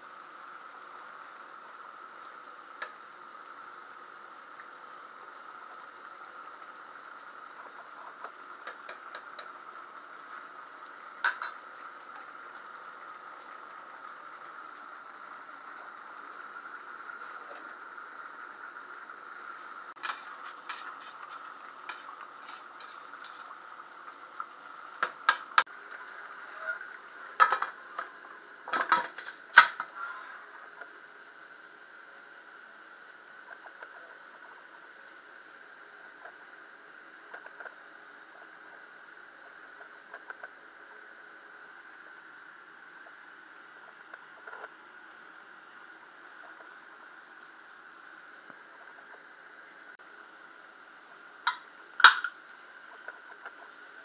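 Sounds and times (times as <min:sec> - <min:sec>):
pot boiling with bubbling hiss: 0:00.0 - 0:54.0
metal clanks of pressure cooker: 0:51.5 - 0:52.3.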